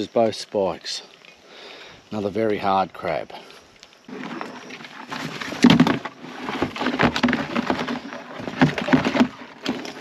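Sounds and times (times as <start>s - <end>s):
crab shells clattering and knocking: 3.8s - 10.0s.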